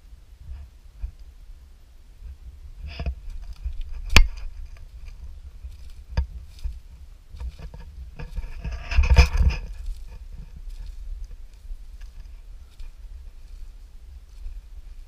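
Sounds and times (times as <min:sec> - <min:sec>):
sharp crunches and snaps: 0:02.9 - 0:13.6
footsteps on dry forest trail: 0:03.1 - 0:15.0.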